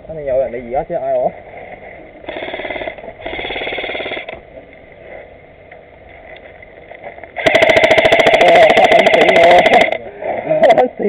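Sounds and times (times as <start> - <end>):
airsoft rifle full-auto burst: 2.2 - 4.4, 7.4 - 10.0.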